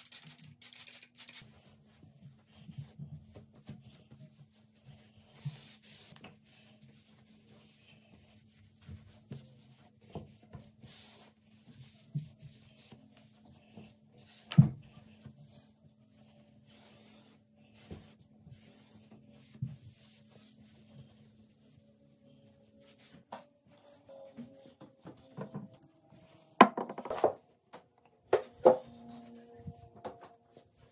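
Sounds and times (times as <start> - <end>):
cloth wiping countertop: 1.4 - 24.6.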